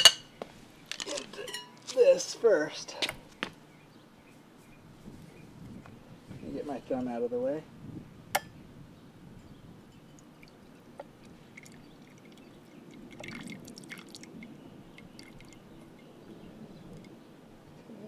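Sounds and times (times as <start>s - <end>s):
fluid trickling into metal pot: 10.1s - 16.1s.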